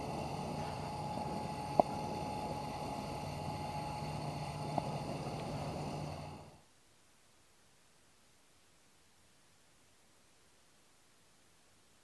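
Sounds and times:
lantern hissing: 0.0s - 6.6s
faint hum: 0.0s - 12.0s.

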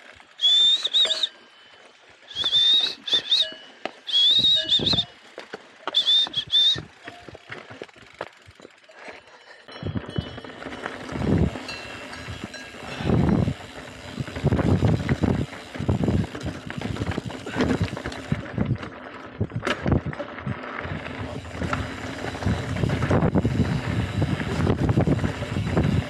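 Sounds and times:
tyres crunching on stones: 0.0s - 13.0s
bike rattling over rocks: 0.0s - 26.0s
wind buffeting microphone: 9.8s - 26.0s.

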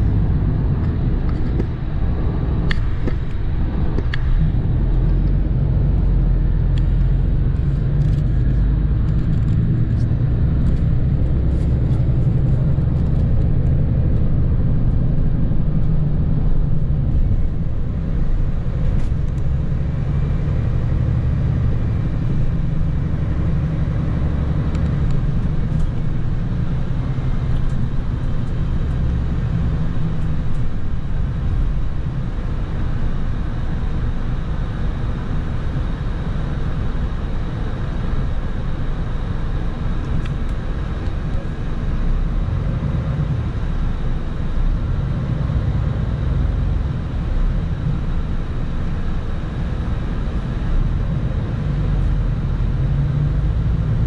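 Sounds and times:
coach engine and tyre noise: 0.0s - 54.0s.

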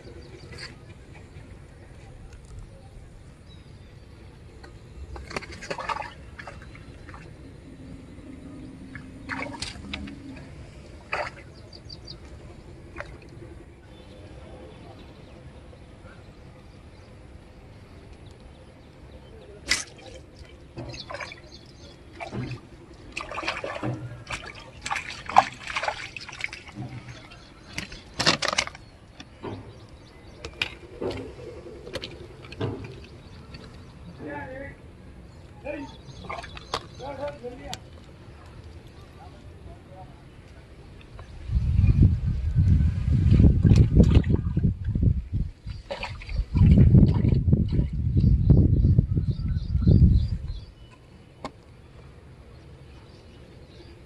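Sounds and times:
fish splashing in water: 5.0s - 7.8s, 8.7s - 13.6s, 19.6s - 34.1s, 36.1s - 39.1s, 45.6s - 48.0s
low steady drone: 6.2s - 19.5s.

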